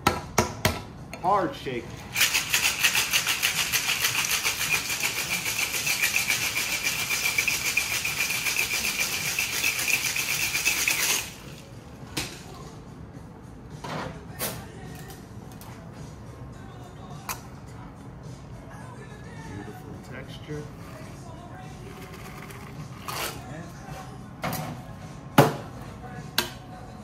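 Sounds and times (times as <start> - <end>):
ice rattling in cocktail shaker: 2.1 - 11.4.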